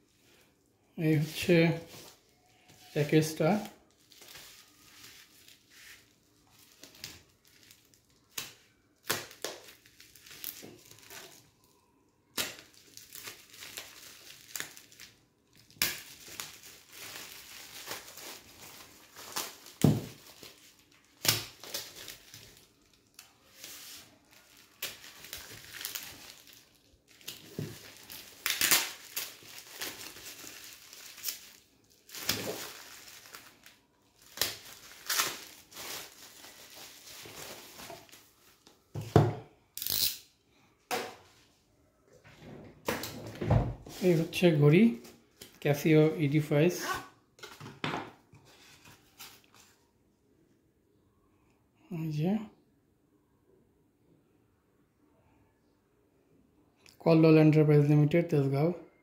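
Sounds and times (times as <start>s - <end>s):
plastic packaging crinkling: 1.2s - 38.9s.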